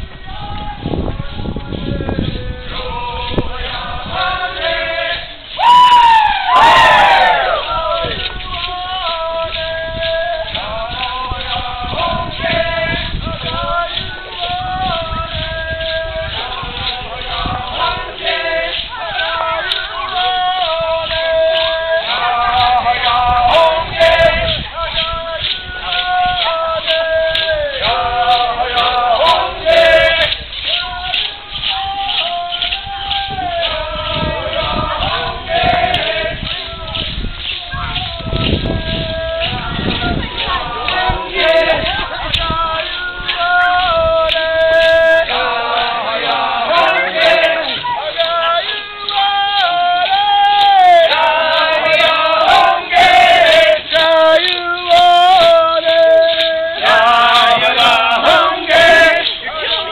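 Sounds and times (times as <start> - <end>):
men singing in long gliding notes: 0.0 - 59.9
group of voices chanting: 3.2 - 8.3, 16.1 - 37.1, 37.7 - 59.9.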